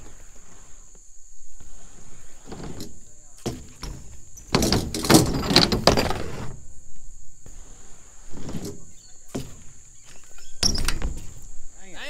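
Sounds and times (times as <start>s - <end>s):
thumps and scuffs: 0.0s - 11.6s.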